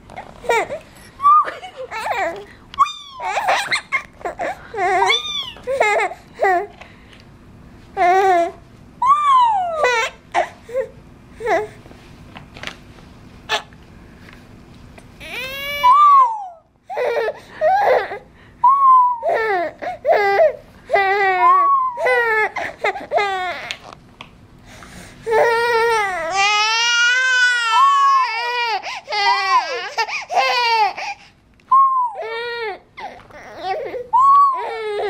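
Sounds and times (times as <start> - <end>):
toddler laughing: 0.2 - 6.6
toddler crying: 0.4 - 6.7, 8.0 - 11.8, 15.2 - 18.2, 19.0 - 23.9, 25.3 - 31.2, 32.1 - 35.0.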